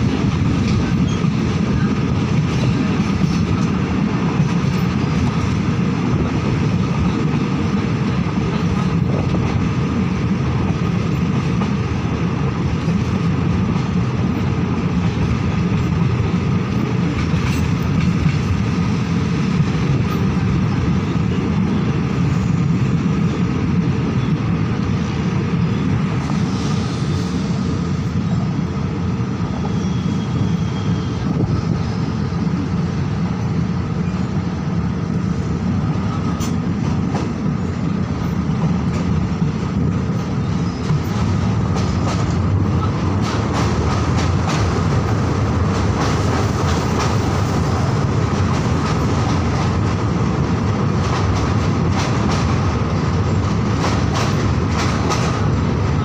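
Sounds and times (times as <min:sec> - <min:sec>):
train wheel-on-rail rumble: 0:00.0 - 0:56.0.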